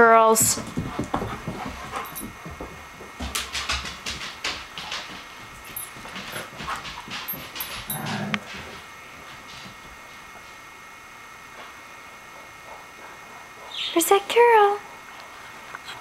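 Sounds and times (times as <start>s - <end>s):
dogs scuffling: 0.3s - 10.7s.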